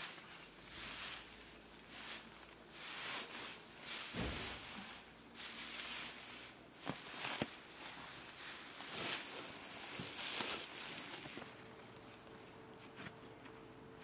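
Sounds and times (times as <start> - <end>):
dry hay rustling: 0.0 - 13.0
dull thump: 4.1 - 5.0.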